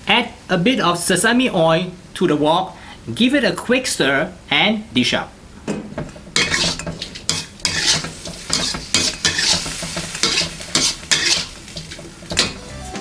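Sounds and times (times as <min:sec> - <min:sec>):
food sizzling in oil: 0:06.0 - 0:13.0
spatula scraping a wok: 0:06.2 - 0:12.6.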